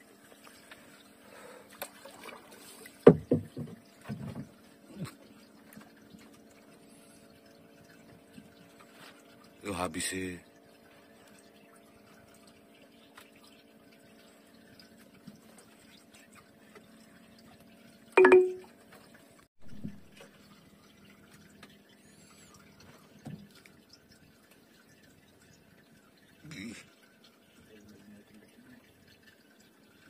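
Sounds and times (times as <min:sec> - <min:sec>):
knocks: 0:03.1 - 0:04.5
water dripping: 0:10.4 - 0:30.0.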